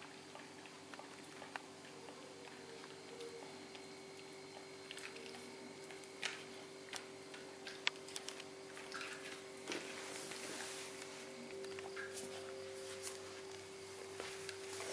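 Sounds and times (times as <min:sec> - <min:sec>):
puppy gnawing rawhide bone: 0:00.0 - 0:09.8.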